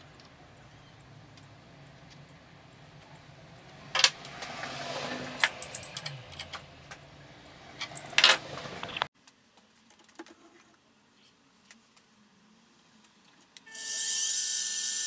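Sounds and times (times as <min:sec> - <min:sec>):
metal blocks clinking in vise: 0:05.4 - 0:06.6.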